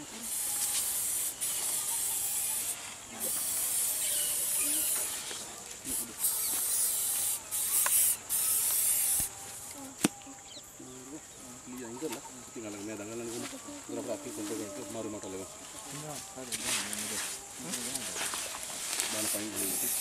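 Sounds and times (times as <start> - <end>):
aerosol spray hissing: 0.0 - 9.3, 18.9 - 20.0.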